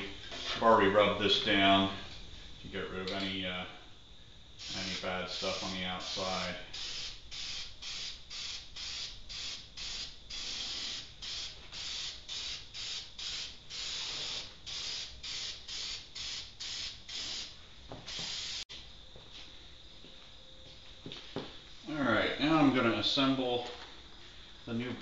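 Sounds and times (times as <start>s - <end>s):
spray can hissing: 4.6s - 18.6s.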